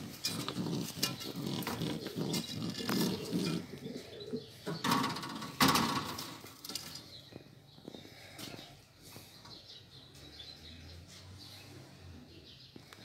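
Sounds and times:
pigeons cooing: 0.0 - 7.0.

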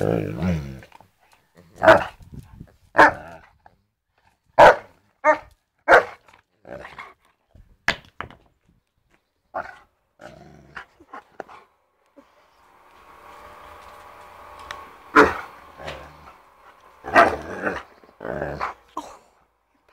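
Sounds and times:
dog barking: 1.8 - 2.1, 3.0 - 3.3, 4.6 - 6.2.

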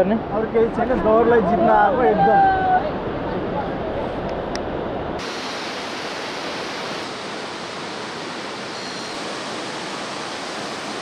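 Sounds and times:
whitewater river rushing: 5.2 - 11.0.

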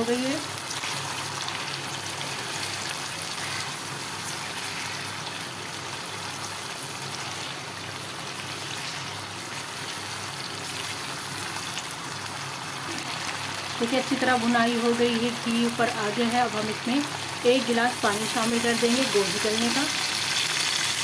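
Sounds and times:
chicken sizzling in wok: 0.0 - 21.0.

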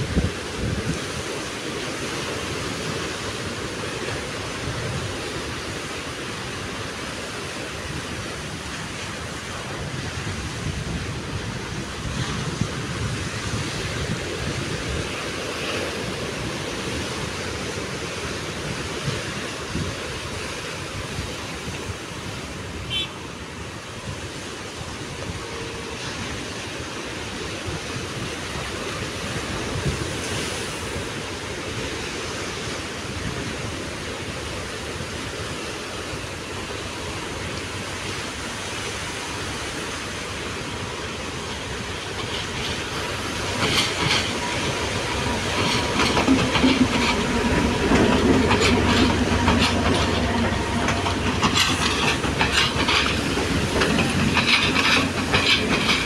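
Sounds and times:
wind gusting on microphone: 0.0 - 56.0
surf breaking on rocks: 23.4 - 56.0.

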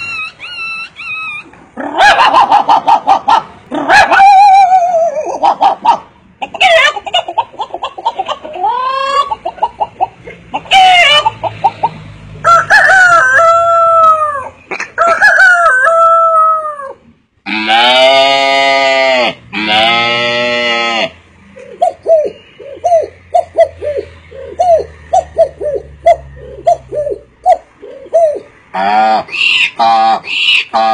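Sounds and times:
man imitating chicken clucking: 0.0 - 12.0, 12.9 - 30.9
man imitating rooster crowing: 12.5 - 19.3.

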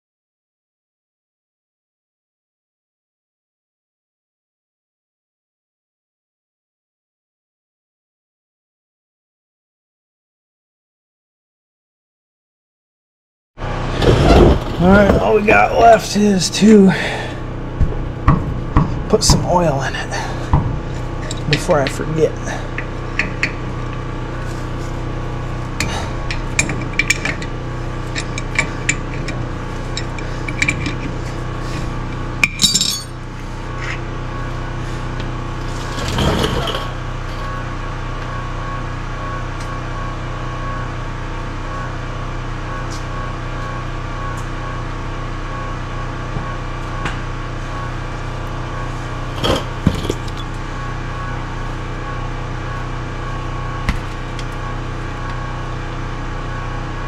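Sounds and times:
steady hum: 13.7 - 57.0
metal tools clinking: 32.4 - 33.2.

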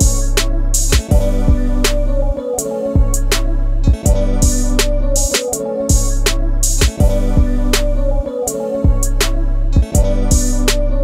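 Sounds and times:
steady drum beat: 0.0 - 1.9, 3.0 - 7.8, 8.9 - 10.8
sustained bass line: 0.0 - 2.4, 3.0 - 11.0.

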